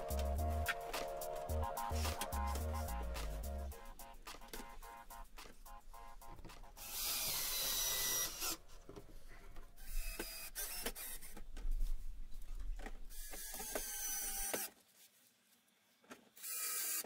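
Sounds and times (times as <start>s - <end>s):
cordless drill motor whine: 6.8s - 8.6s, 9.8s - 11.4s, 13.1s - 14.7s.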